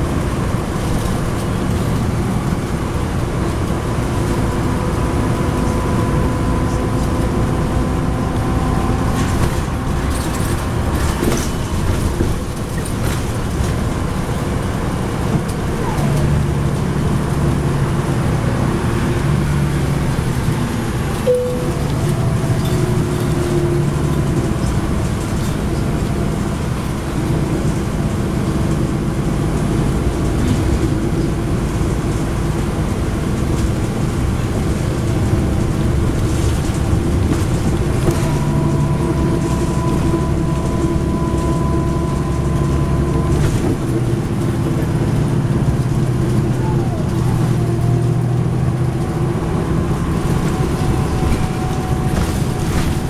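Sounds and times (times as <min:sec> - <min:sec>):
bus diesel engine cruising: 0:00.0 - 0:53.0
road and tyre noise: 0:00.0 - 0:53.0.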